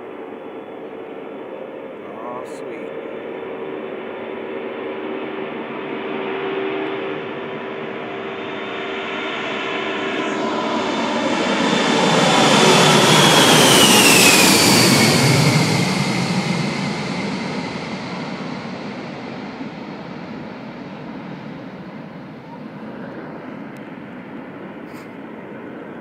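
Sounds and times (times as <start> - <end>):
jet engine whine: 0.0 - 26.0
jet engines roaring at takeoff: 0.0 - 26.0.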